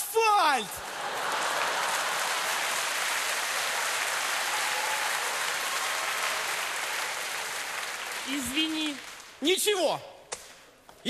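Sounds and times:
studio audience applauding: 0.2 - 9.9.

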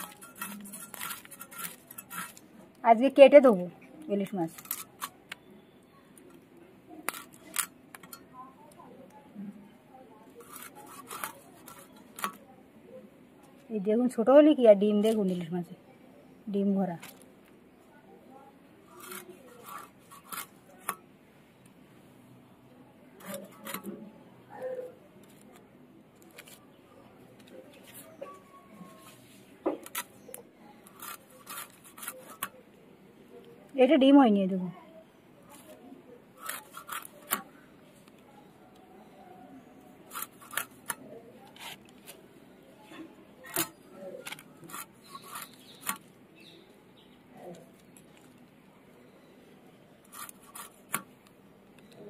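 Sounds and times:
knife scraping fish scales: 0.0 - 2.5, 4.5 - 5.2, 7.1 - 8.3, 10.3 - 12.4, 18.8 - 21.0, 23.2 - 24.0, 27.8 - 32.6, 36.4 - 37.5, 40.1 - 42.2, 43.5 - 46.1, 50.0 - 51.1.

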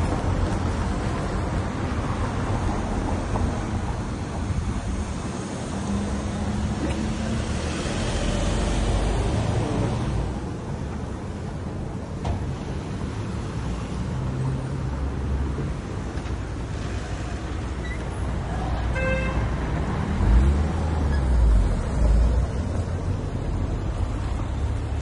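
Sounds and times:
cars passing: 0.0 - 25.0
car horn toot: 18.9 - 19.4.

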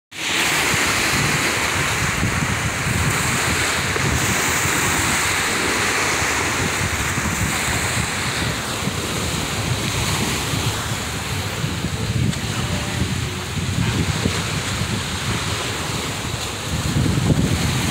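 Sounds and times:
small waves lapping: 0.2 - 17.9
wind buffeting microphone: 0.2 - 17.9.

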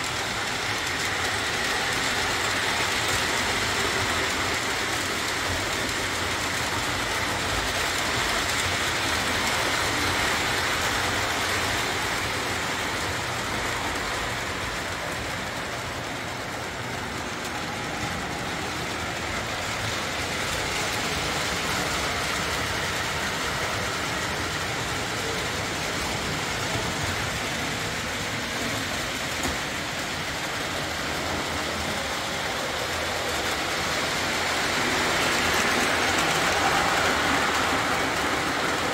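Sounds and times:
toy train whirring on track: 0.0 - 38.9.

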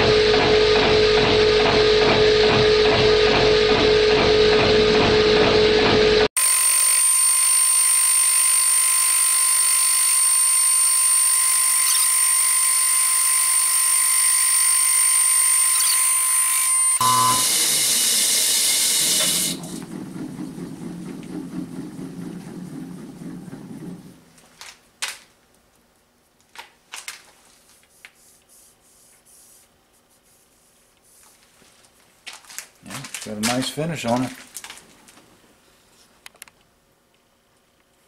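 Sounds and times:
milling machine cutting metal: 0.0 - 19.8
spindle winding down rumble: 19.6 - 24.3.

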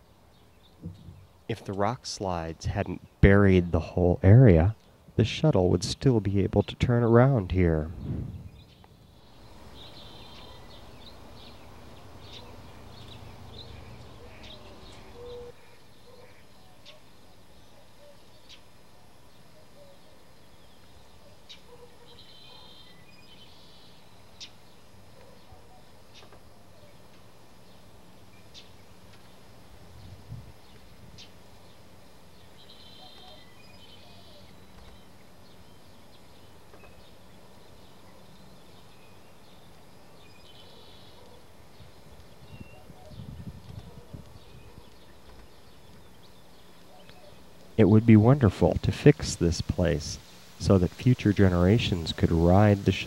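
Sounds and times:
small birds chirping: 0.0 - 5.2, 6.0 - 53.0
low rumble: 7.7 - 8.8.

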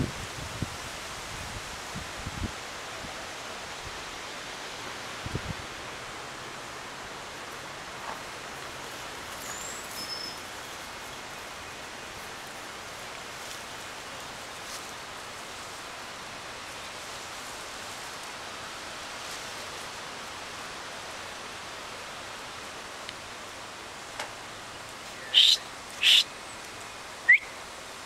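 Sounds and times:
leaves rustling in breeze: 0.0 - 28.0
short high bird chirps: 25.2 - 26.3, 27.3 - 27.6.

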